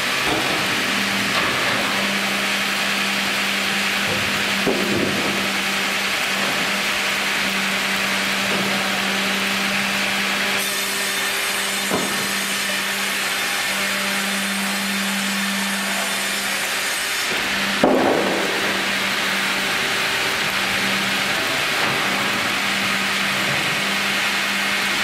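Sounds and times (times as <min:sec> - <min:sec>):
motor hum: 0:00.0 - 0:10.6, 0:17.3 - 0:25.0
band saw cutting wood: 0:00.0 - 0:25.0
loud wooden knock: 0:04.0 - 0:05.5, 0:11.9 - 0:12.4, 0:17.7 - 0:19.6.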